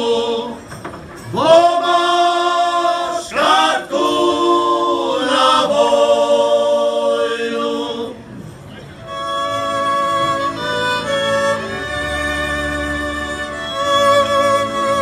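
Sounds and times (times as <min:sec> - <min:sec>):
group singing folk song: 0:00.0 - 0:08.4.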